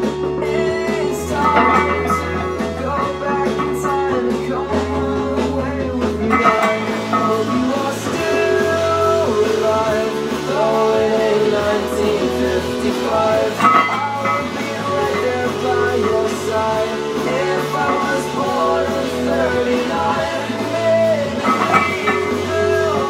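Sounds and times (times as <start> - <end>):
rock song with singing and guitar: 0.0 - 23.0.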